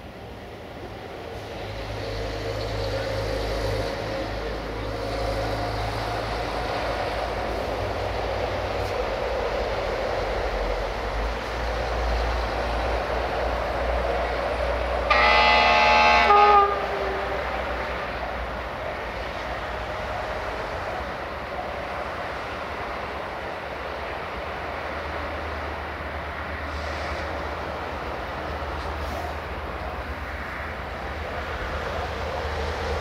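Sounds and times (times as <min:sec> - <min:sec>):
diesel locomotive engine rumble: 0:00.0 - 0:33.0
train horn blast: 0:15.1 - 0:17.6.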